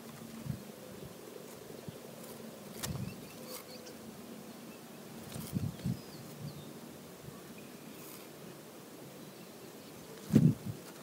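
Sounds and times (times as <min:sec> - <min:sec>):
low background hiss: 0:00.0 - 0:11.0
faint bird chirps: 0:02.8 - 0:08.3.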